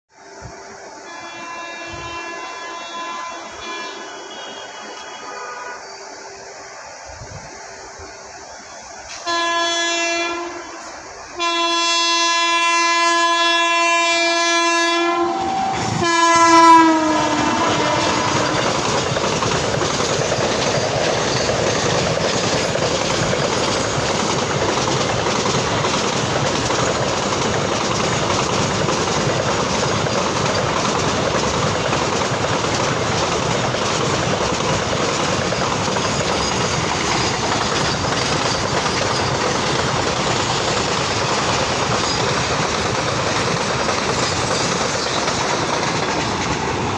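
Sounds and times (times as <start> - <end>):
freight train wheels on rails: 0.1 - 46.9
locomotive horn blasts: 1.0 - 5.9, 9.1 - 18.9.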